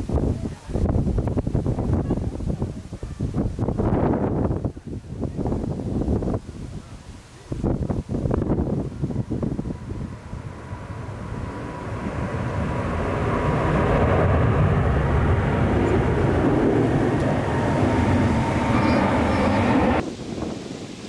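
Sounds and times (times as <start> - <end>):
jet airliner passing overhead: 8.2 - 21.0.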